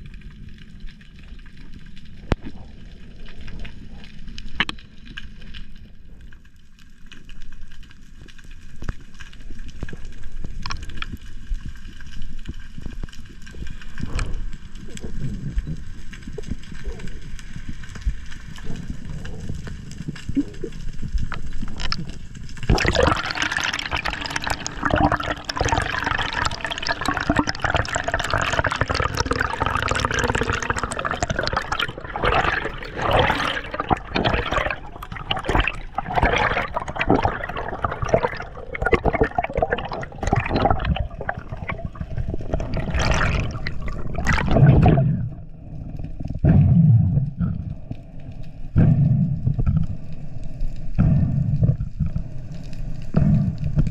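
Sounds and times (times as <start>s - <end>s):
low underwater rumble: 9.5s - 53.9s
scuba exhaust bubbles gurgling: 12.8s - 53.9s.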